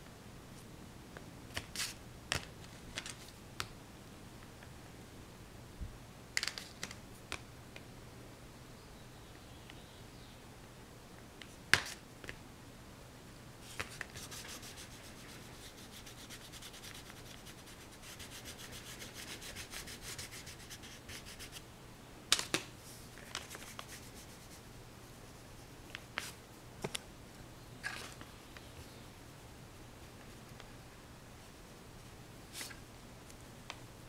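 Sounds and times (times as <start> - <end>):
fast scratchy rubbing: 14.0 - 21.6, 23.4 - 24.6.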